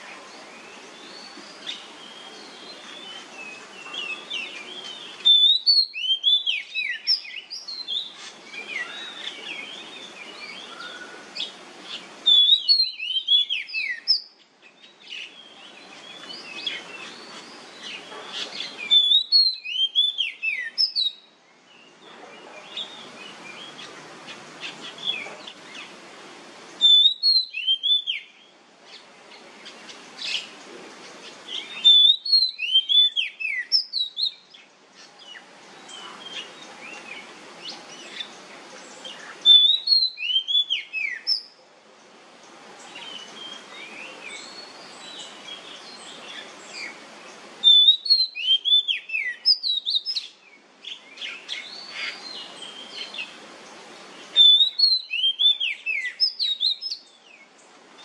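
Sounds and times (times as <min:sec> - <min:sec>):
steady hiss: 0:00.0 - 0:58.0
bird singing whistled phrases: 0:03.1 - 0:08.1, 0:12.2 - 0:14.4, 0:18.7 - 0:21.3, 0:26.8 - 0:28.5, 0:31.6 - 0:34.4, 0:39.4 - 0:41.5, 0:47.6 - 0:53.2, 0:54.4 - 0:57.1.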